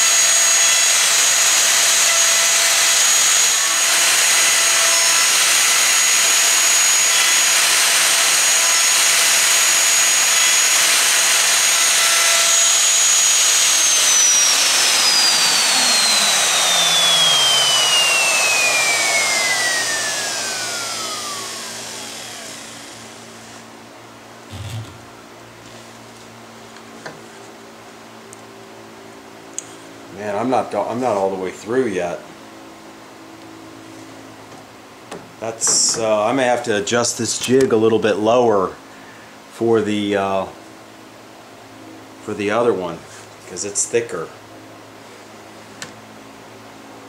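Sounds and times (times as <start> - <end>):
router whining: 0.0 - 23.7, 24.5 - 25.2
dust extractor hum: 0.0 - 26.2
short thump: 24.5 - 25.0.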